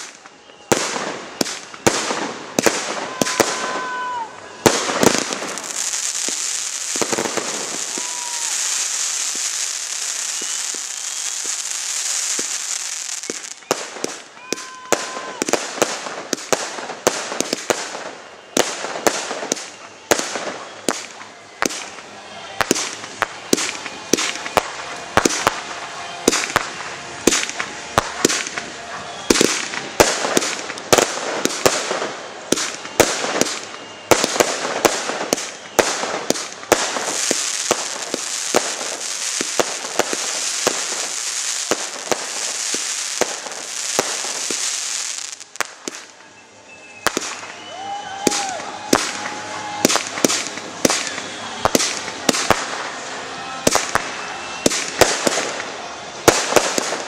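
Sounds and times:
fireworks hissing and crackling: 0:00.0 - 0:57.0.

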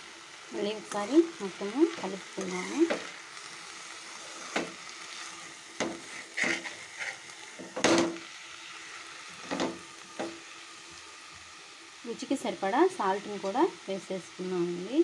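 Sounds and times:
faint sizzle: 0:00.0 - 0:15.0
metal spoon scraping a pan: 0:01.9 - 0:03.2, 0:04.0 - 0:08.2.

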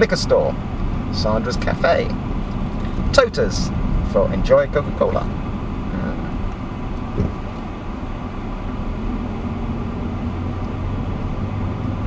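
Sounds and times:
engine and road rumble: 0:00.0 - 0:12.0
low thump: 0:07.0 - 0:07.5.

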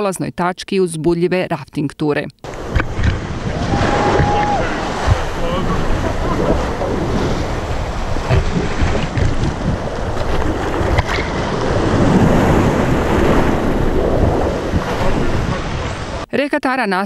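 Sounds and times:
wind buffeting microphone: 0:02.5 - 0:16.3
whitewater rapids rushing: 0:03.3 - 0:09.2.

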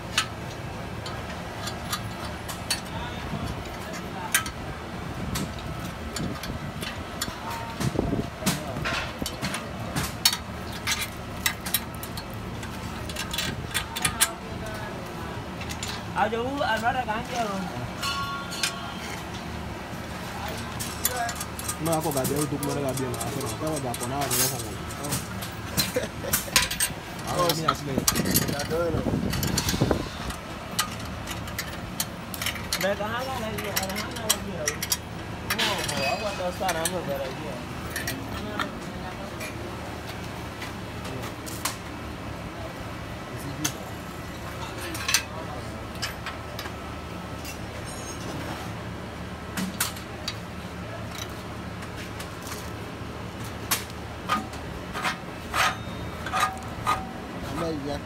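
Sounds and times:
voices talking: 0:00.3 - 0:58.0
spanners clinking on metal: 0:16.8 - 0:19.6, 0:20.4 - 0:38.7, 0:53.7 - 0:57.9
metal tool clinking on steel: 0:18.0 - 0:19.5, 0:30.8 - 0:38.7.

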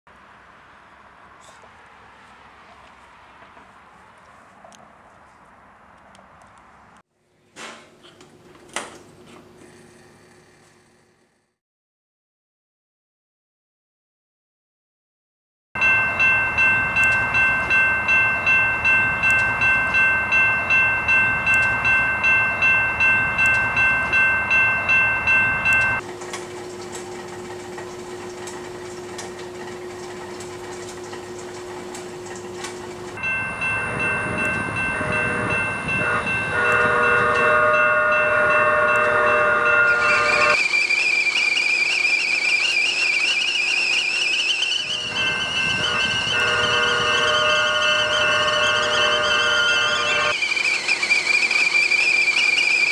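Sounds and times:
railroad crossing bell ringing: 0:15.8 - 0:26.0, 0:32.5 - 0:52.9
kettle whistling: 0:33.0 - 0:52.9
layered steady tones: 0:33.2 - 0:52.9
train horn: 0:33.8 - 0:40.6, 0:44.8 - 0:50.4.

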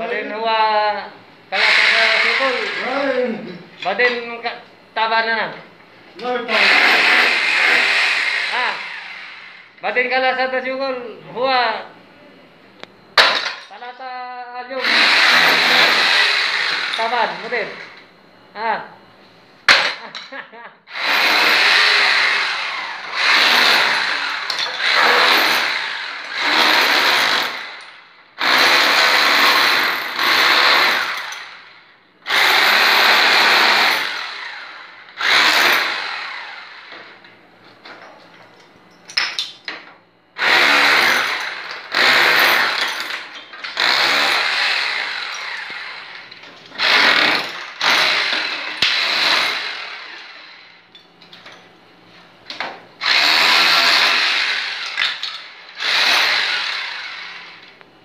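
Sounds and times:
electric power tool bursts: 0:01.5 - 0:03.3, 0:06.5 - 0:09.8, 0:14.8 - 0:17.7, 0:20.9 - 0:36.9, 0:40.4 - 0:50.9, 0:53.0 - 0:57.7.

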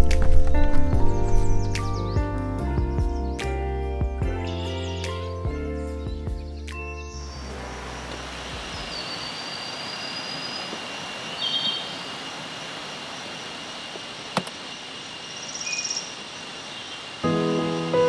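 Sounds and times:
insect chirps and trills: 0:06.6 - 0:18.0
insect drone: 0:07.1 - 0:18.0
sharp click: 0:14.3 - 0:14.6.

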